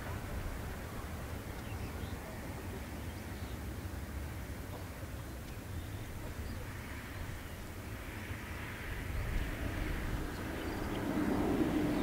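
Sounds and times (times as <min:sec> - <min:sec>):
jet engine noise: 0:03.6 - 0:12.0.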